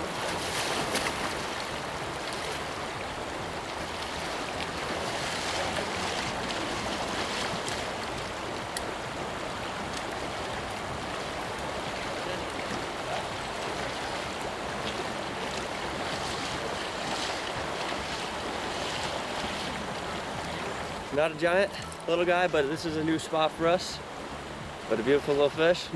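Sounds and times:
river rushing over gravel: 0.0 - 25.9
splashing of wading: 0.0 - 25.9.

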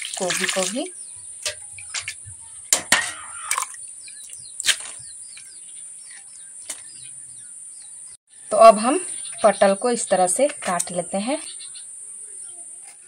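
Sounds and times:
water splashing: 0.0 - 5.1
insects chirring: 0.0 - 13.0
bird chirps: 0.9 - 9.8, 10.9 - 12.8.

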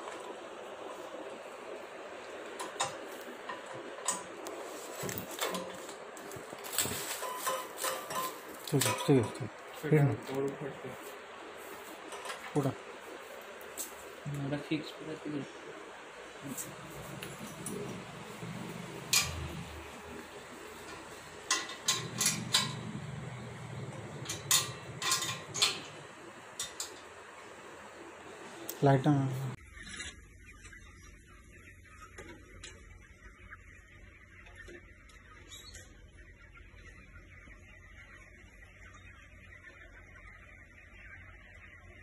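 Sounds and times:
steady hiss: 0.0 - 29.6
low steady hum: 0.0 - 42.0
metal rollers clicking and rattling: 16.4 - 27.2.

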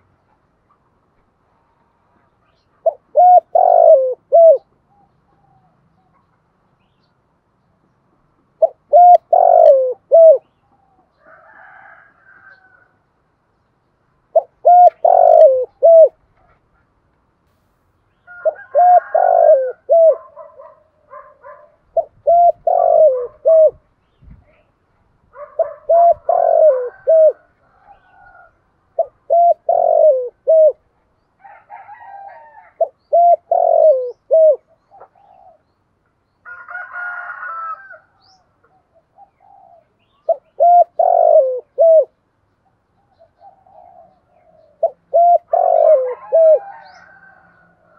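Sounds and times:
dove cooing: 2.8 - 6.2, 8.6 - 12.8, 14.3 - 16.7, 18.3 - 23.8, 25.3 - 35.7, 38.7 - 42.2, 43.0 - 47.9.

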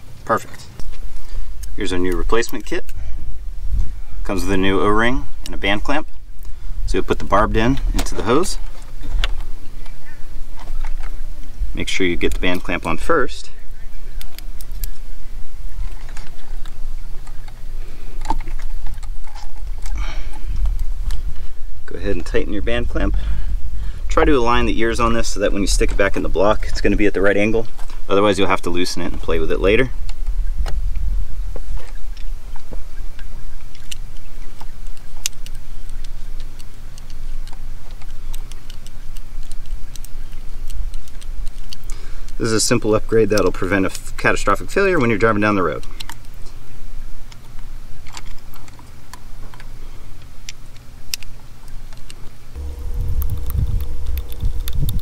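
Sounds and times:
steady low rumble: 0.0 - 33.8, 52.5 - 55.0.

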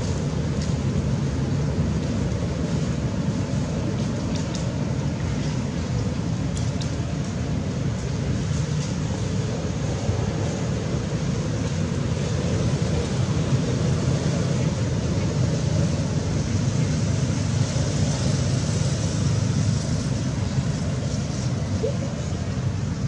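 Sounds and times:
hiss: 0.0 - 23.0.

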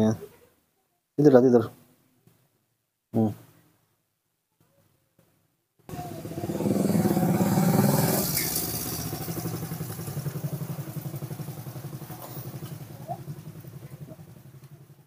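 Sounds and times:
small engine running: 5.9 - 15.0.

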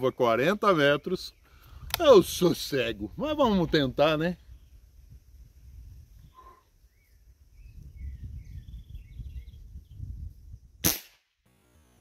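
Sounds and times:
air rifle shot: 10.8 - 11.3.

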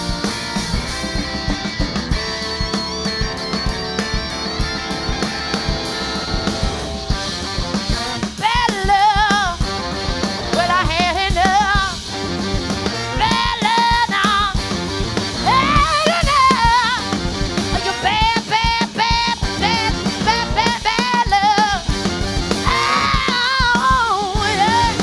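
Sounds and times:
harmonica line: 0.0 - 25.0
live rock band playing: 0.0 - 25.0.

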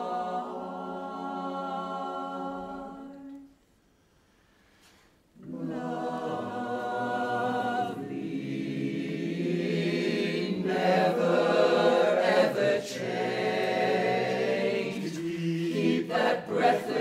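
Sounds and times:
chorus singing in harmony: 0.0 - 3.6, 5.4 - 17.0.

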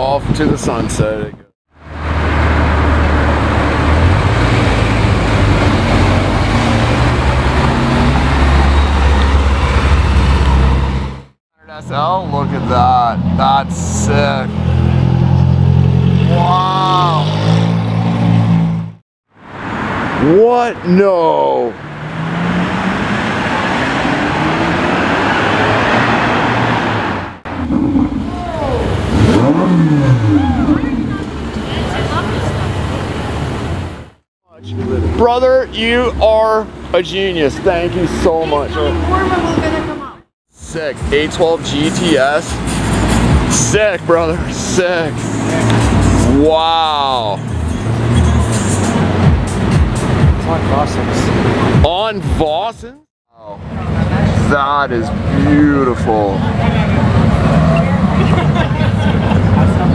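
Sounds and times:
road traffic noise: 0.0 - 59.9
engine revving: 1.7 - 19.0, 20.0 - 52.0, 53.4 - 59.9
sports car accelerating: 1.9 - 11.3, 21.7 - 33.8, 41.0 - 46.4, 53.6 - 59.9.

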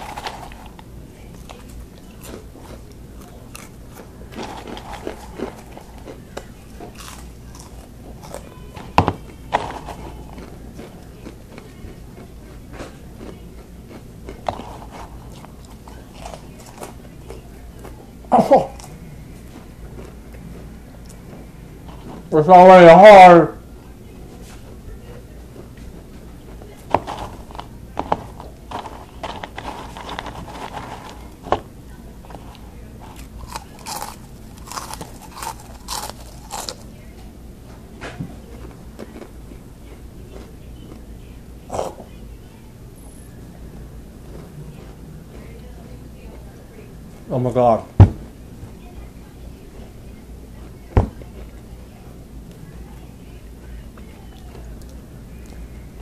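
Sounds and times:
chewing crunchy snacks: 0.0 - 22.3, 25.1 - 37.2, 38.5 - 39.7, 40.3 - 42.2.

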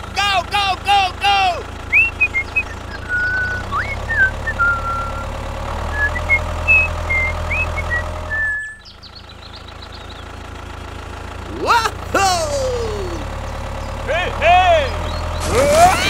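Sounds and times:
tractor engine rumble: 0.0 - 16.0
high bird-like chirps: 1.9 - 5.3, 6.0 - 10.3.

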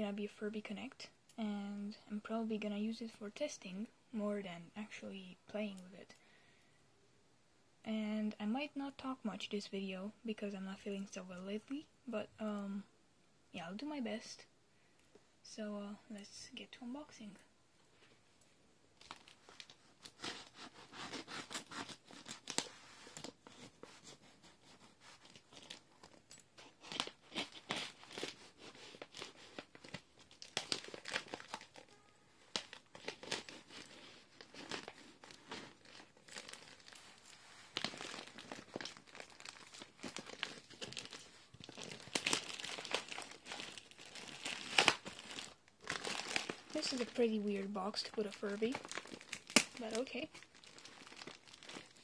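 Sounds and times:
plastic bag crinkling: 19.0 - 52.0
plastic bag tearing: 19.0 - 52.0.

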